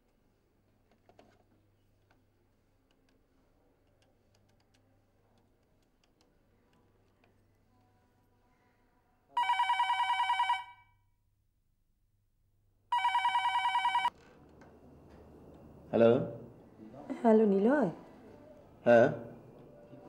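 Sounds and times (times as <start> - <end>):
warbling telephone ring: 9.4 - 10.8, 12.9 - 14.1.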